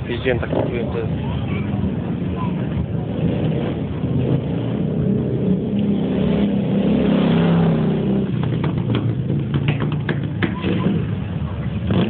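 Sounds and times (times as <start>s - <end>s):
motorcycle engine passing: 3.0s - 12.0s.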